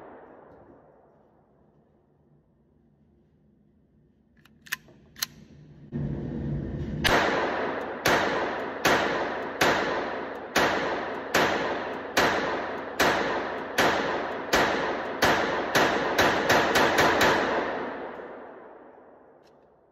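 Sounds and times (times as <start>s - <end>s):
pistol shots echoing: 7.1s - 19.4s.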